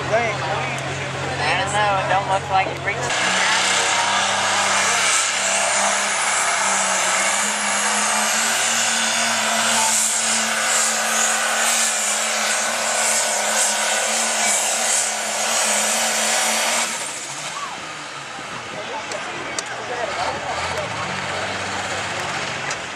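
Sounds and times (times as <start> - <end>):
tractor engine at full throttle: 0.0 - 22.9.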